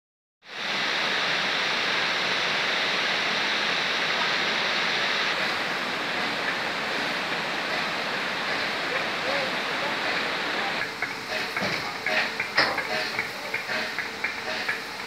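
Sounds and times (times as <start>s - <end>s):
water rushing over weir: 0.5s - 15.0s.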